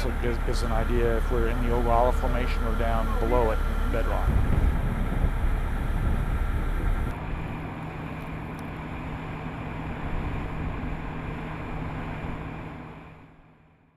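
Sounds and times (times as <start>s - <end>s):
drilling rig engine running: 0.0s - 13.7s.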